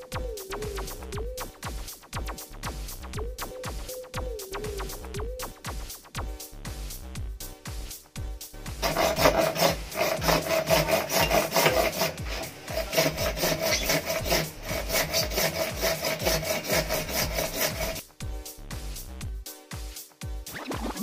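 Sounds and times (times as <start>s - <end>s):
handsaw cutting plastic: 8.8s - 18.0s.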